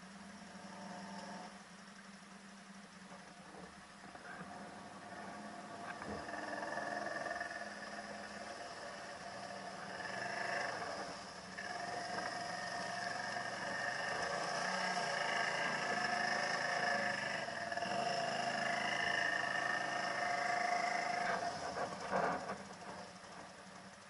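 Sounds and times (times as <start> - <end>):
quad engine whining: 0.0 - 1.6, 3.1 - 24.0.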